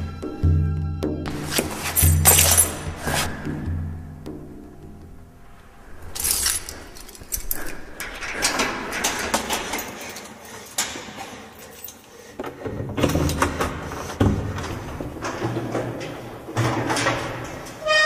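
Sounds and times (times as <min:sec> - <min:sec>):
rustling and handling clatter: 0:01.4 - 0:03.4, 0:06.0 - 0:17.8.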